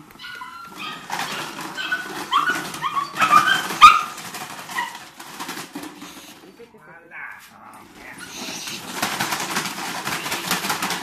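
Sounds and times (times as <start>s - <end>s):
plastic bottle crackling: 0.0s - 6.6s, 7.6s - 11.0s
puppy yipping and whining: 0.1s - 5.0s.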